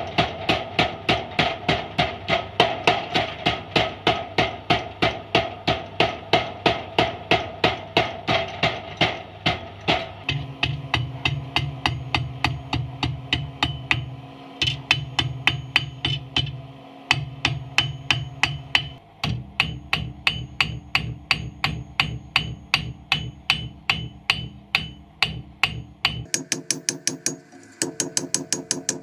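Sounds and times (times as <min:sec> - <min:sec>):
hammer ringing on anvil: 0:10.3 - 0:29.0.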